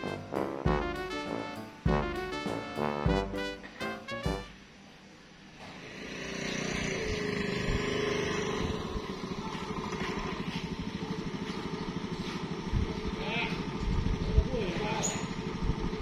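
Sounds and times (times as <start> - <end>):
scooter engine idling: 5.8 - 16.0.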